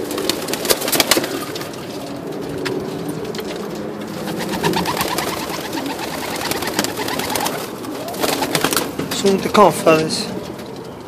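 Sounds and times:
wing flaps: 0.0s - 9.2s
pigeons cooing: 0.0s - 11.0s.

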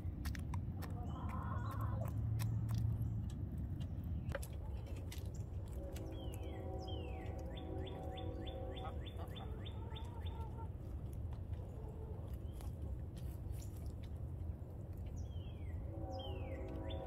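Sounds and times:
steady low rumble: 0.0s - 17.0s
hens softly clucking: 0.8s - 2.2s, 8.8s - 13.4s.

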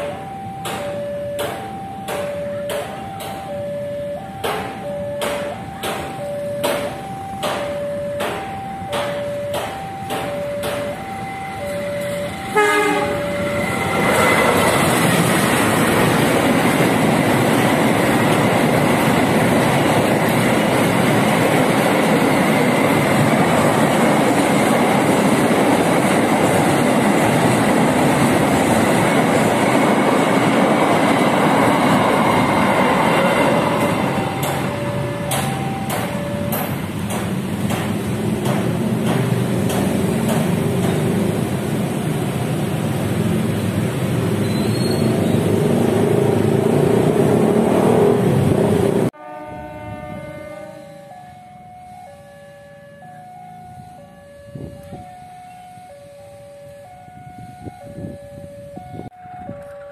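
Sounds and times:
two-tone crossing alarm: 0.0s - 43.3s, 48.8s - 59.9s
freight train passing: 0.0s - 59.9s
locomotive horn blast: 12.5s - 15.0s, 49.1s - 51.3s.

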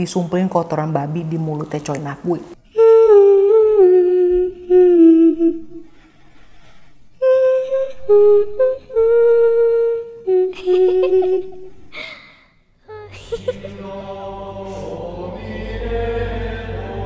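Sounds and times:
person humming slow tune: 2.6s - 6.0s, 7.2s - 12.2s, 12.8s - 16.9s.

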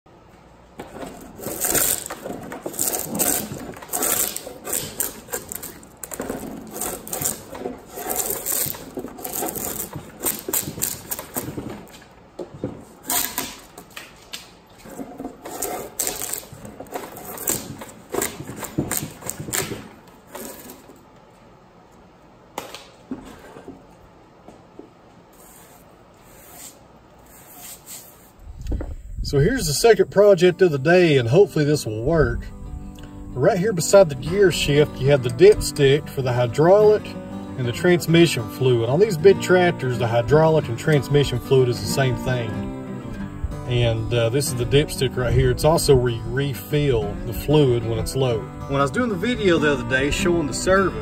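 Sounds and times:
drawknife scraping bark off wood: 1.0s - 11.5s, 13.0s - 13.8s, 14.9s - 20.8s, 25.4s - 28.3s.

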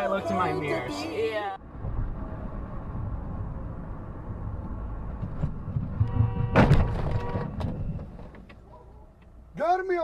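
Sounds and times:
road and engine noise: 0.0s - 10.0s
car crash impact thunk: 5.3s - 8.2s.

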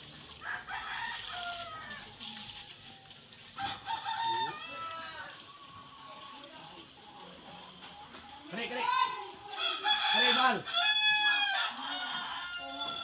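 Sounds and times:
rooster crowing: 0.4s - 2.2s, 3.6s - 5.4s, 9.5s - 13.0s.

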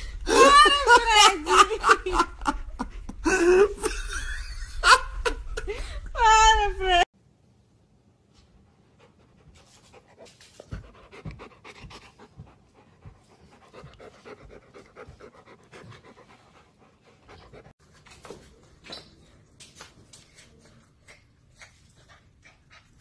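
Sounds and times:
dog panting: 8.7s - 17.8s, 21.2s - 23.0s.

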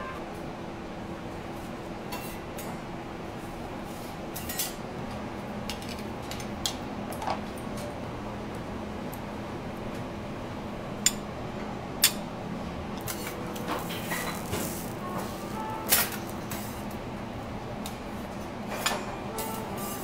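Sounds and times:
metal utensils clinking on griddle: 13.0s - 16.8s.

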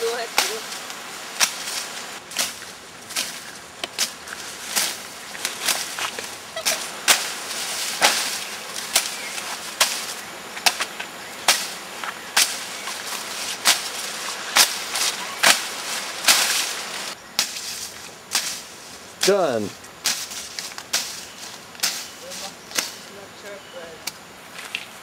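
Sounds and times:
grass rustling: 0.0s - 25.0s
machete slashing through grass: 1.4s - 11.8s, 12.4s - 18.6s.

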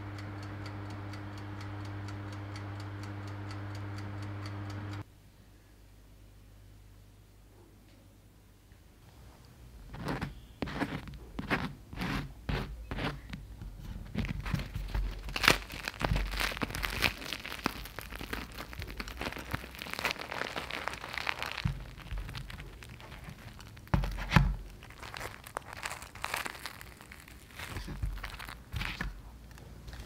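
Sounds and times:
bun tearing and crackling: 13.9s - 30.0s.

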